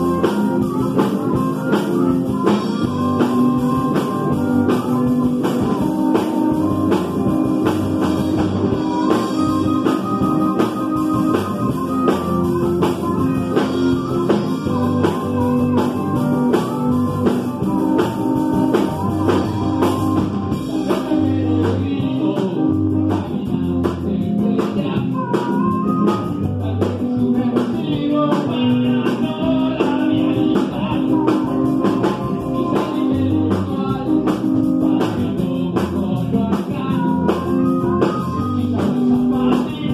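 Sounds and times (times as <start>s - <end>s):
wavering lead melody: 0.0s - 23.1s, 36.8s - 39.7s
drum kit: 0.0s - 39.9s
electric bass: 0.0s - 39.9s
electric guitar: 0.0s - 39.9s.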